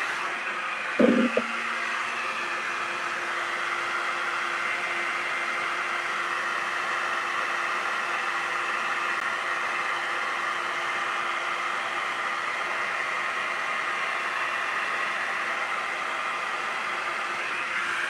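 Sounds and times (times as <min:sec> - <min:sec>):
faint motor hum: 0:00.0 - 0:08.1
hot air brush blowing air: 0:00.0 - 0:18.0.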